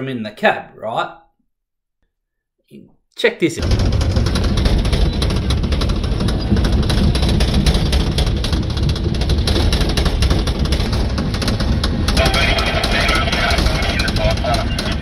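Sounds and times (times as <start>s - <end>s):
diesel engine running: 3.6s - 15.0s
steel tracks clattering: 3.6s - 15.0s.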